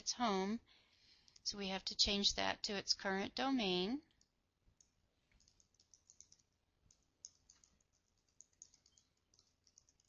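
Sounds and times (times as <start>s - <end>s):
faint keyboard typing: 1.1s - 1.6s, 4.0s - 10.0s.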